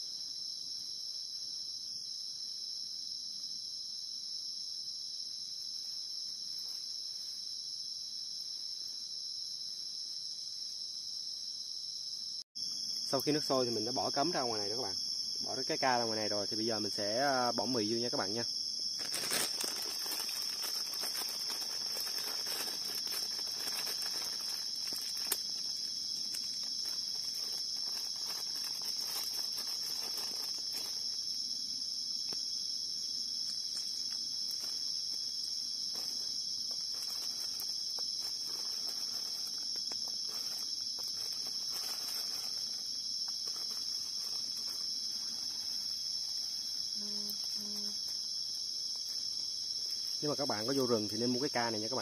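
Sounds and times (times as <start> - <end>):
night insects trilling: 0.0 - 52.0
faint rustling and handling: 18.9 - 31.6, 33.4 - 51.3.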